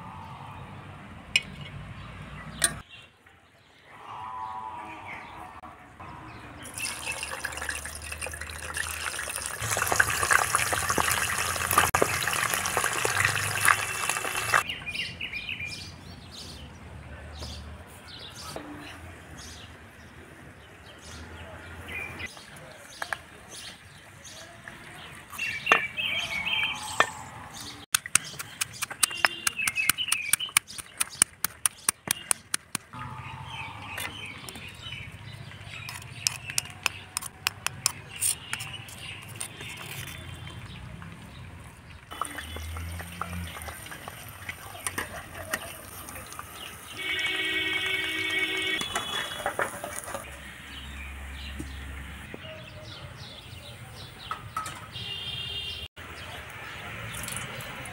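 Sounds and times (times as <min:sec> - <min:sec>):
birds chirping: 0:00.0 - 0:57.9
loud hissing crackle: 0:09.6 - 0:14.6
pestle pounding in stone mortar: 0:27.9 - 0:32.9.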